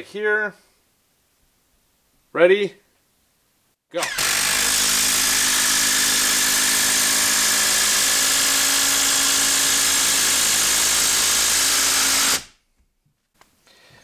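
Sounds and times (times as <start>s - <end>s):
impact driver driving screw into wood: 4.0s - 12.6s.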